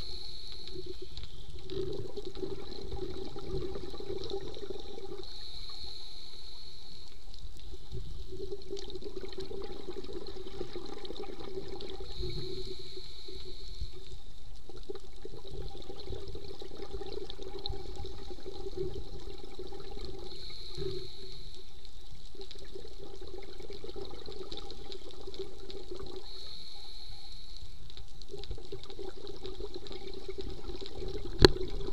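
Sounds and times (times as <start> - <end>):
hissing regulator inhale: 0.0 - 1.5, 5.2 - 7.9, 12.0 - 14.3, 20.2 - 21.8, 26.2 - 27.8
bubbling exhale: 0.0 - 14.3, 15.3 - 21.7, 22.5 - 27.8.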